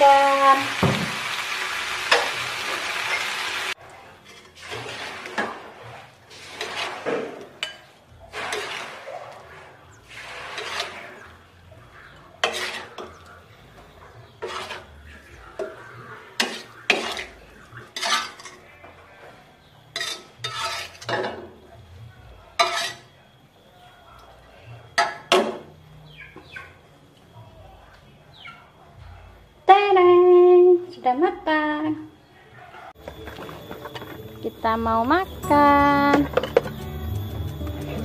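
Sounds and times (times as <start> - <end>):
spatula scraping wok: 2.0 - 21.6, 22.5 - 23.1.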